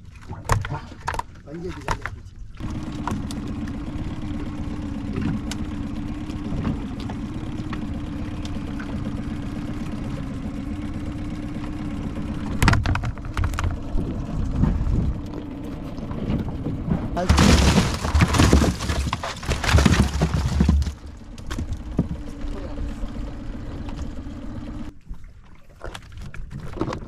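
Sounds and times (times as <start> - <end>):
boat engine idling: 0.0 - 25.1
knocks and clatter: 12.6 - 13.8, 16.9 - 22.3.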